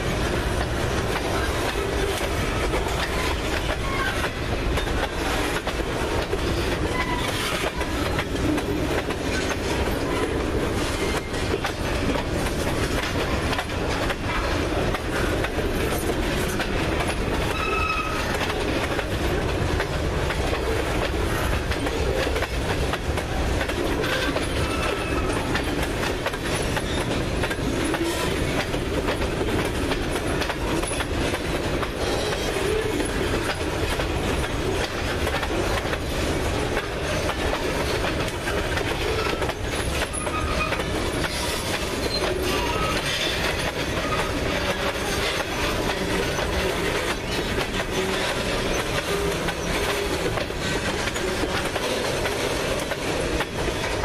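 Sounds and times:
train wheels rumbling on rails: 0.0 - 54.0
wheels clacking over rail joints: 0.0 - 54.0
high wheel squeals: 1.4 - 4.4, 17.4 - 18.4, 24.0 - 25.6, 39.0 - 46.6.

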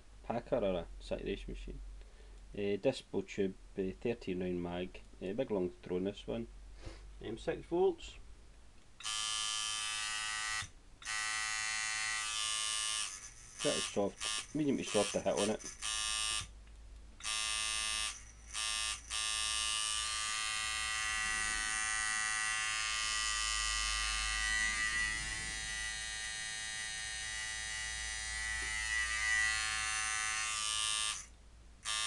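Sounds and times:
tattoo machine buzzing: 9.0 - 16.5, 17.2 - 32.0.

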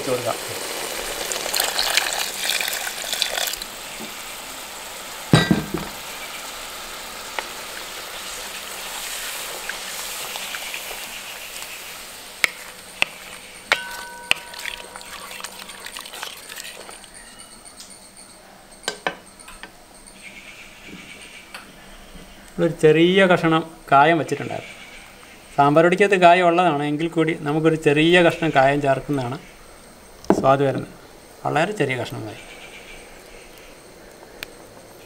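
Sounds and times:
water poured into a pot: 0.0 - 4.4, 13.7 - 17.2
curry hissing while cooking: 0.0 - 17.4, 20.7 - 35.0
loud knock: 5.4 - 6.0
sharp metal clinks: 13.6 - 16.4.

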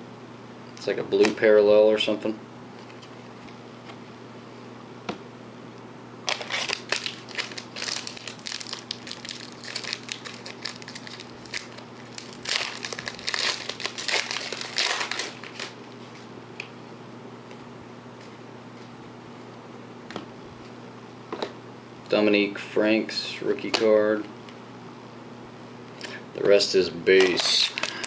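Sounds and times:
foil wrapper crinkling: 6.3 - 15.8, 27.2 - 28.0.

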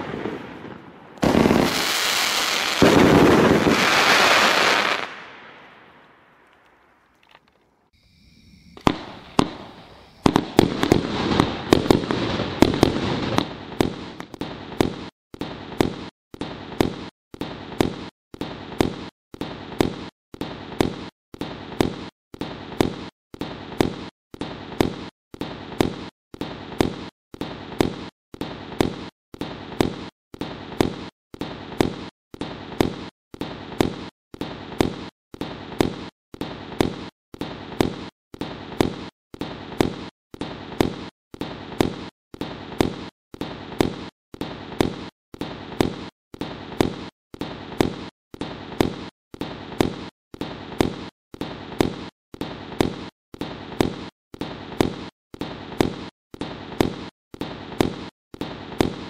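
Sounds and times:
fireworks cake firing: 0.0 - 5.8, 8.7 - 59.0.

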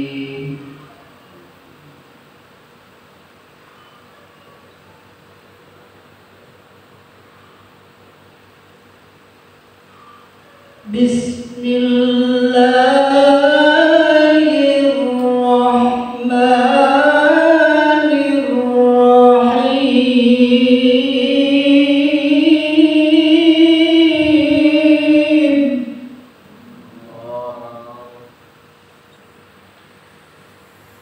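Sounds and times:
man chanting into a microphone: 0.0 - 0.9, 10.9 - 21.4, 26.5 - 28.4.

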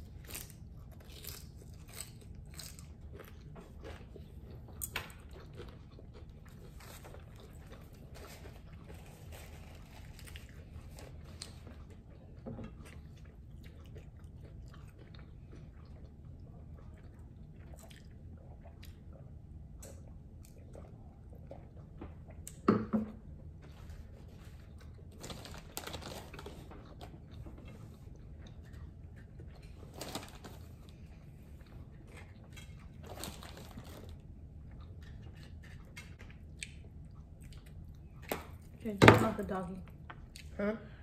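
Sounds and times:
chewing crunchy taco shells: 0.0 - 38.9.

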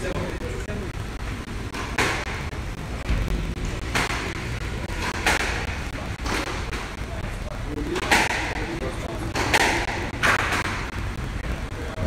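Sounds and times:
low rumble: 0.7 - 8.0.

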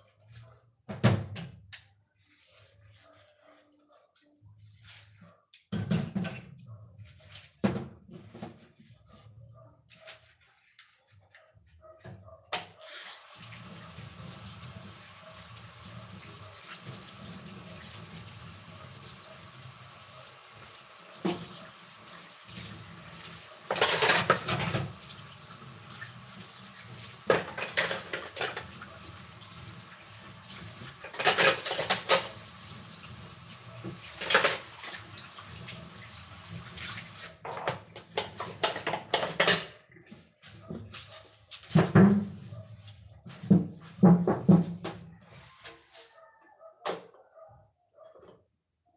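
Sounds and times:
tap water running into sink: 13.1 - 39.6
dishes and cutlery clattering: 23.7 - 24.9, 27.3 - 28.7, 31.0 - 32.4, 34.2 - 34.7, 37.4 - 39.8.

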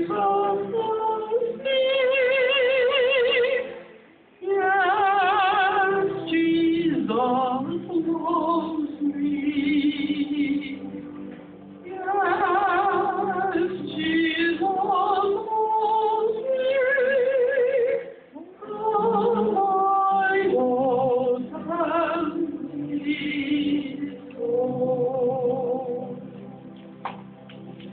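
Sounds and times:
person singing with vibrato: 0.0 - 26.6
electronic keyboard chords: 21.7 - 27.9.

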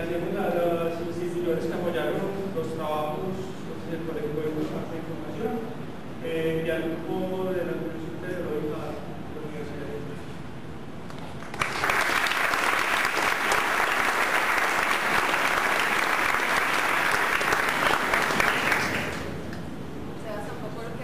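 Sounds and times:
audience applauding: 11.4 - 19.6.

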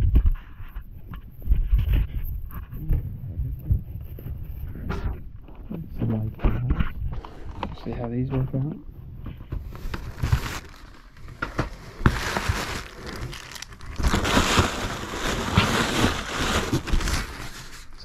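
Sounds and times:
plastic packaging crinkling: 9.6 - 18.0.

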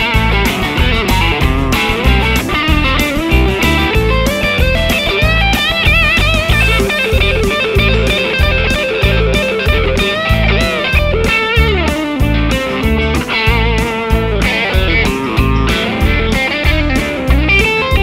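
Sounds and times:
backing bass and drums: 0.0 - 18.0
electric guitar lead line: 0.0 - 18.0.

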